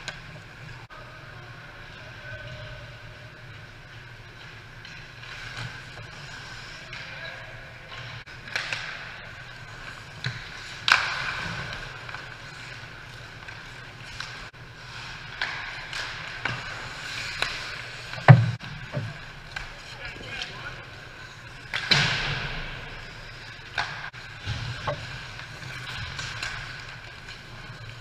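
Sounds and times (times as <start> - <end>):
skates scraping ice: 0.0 - 28.0
hockey sticks and puck clacking: 1.8 - 28.0.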